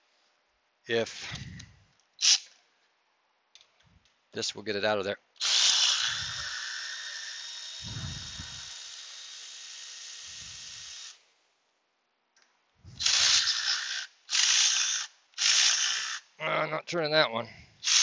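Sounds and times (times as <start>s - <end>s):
cordless ratchet running: 5.4s - 11.2s, 13.0s - 16.2s.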